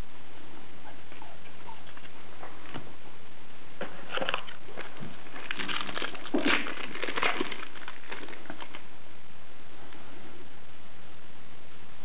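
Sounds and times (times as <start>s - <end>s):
foil wrapper crinkling: 4.1s - 8.9s.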